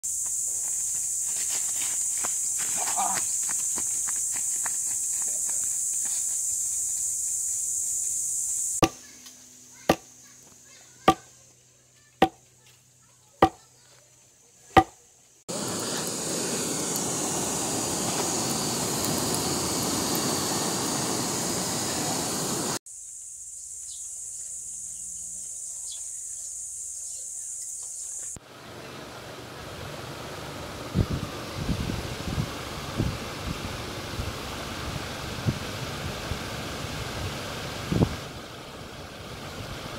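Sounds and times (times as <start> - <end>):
high-pitched outdoor whine: 14.8 - 22.8, 28.1 - 39.9
loud rushing noise: 15.5 - 22.8.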